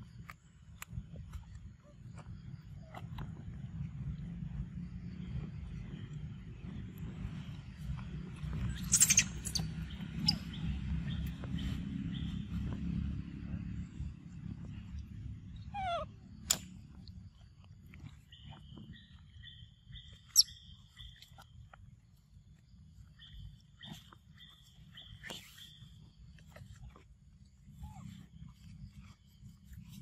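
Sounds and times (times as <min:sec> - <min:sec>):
low rumble: 0:00.0 - 0:30.0
macaques squeaking and calling: 0:08.6 - 0:10.7, 0:15.6 - 0:16.6.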